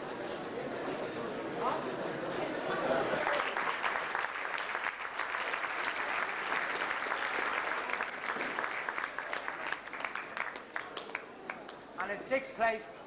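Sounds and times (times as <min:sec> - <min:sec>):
audience applauding: 0:03.1 - 0:12.1.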